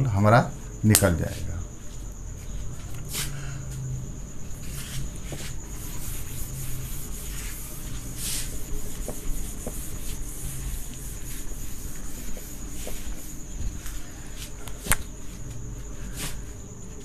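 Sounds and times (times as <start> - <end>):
steady high-pitched whine: 0.0 - 17.0
cloth wiping whiteboard: 4.6 - 14.5.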